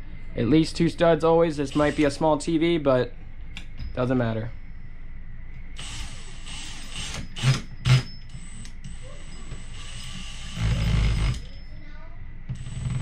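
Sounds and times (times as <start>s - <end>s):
cordless drill motor whining: 1.6s - 2.2s, 5.8s - 11.6s, 12.5s - 13.0s.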